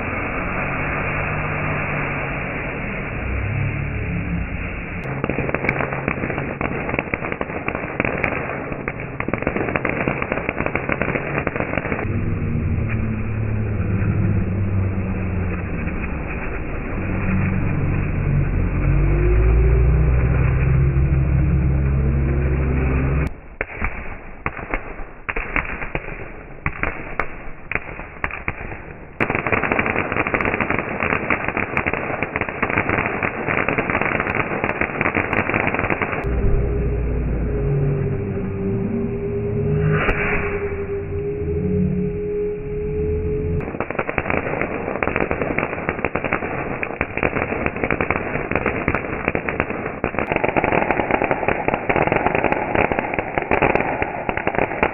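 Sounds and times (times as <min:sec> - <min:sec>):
deep rumbling drone: 0:00.0 - 0:24.3, 0:36.0 - 0:47.1
firework fountains crackling: 0:00.0 - 0:36.3, 0:43.6 - 0:54.9.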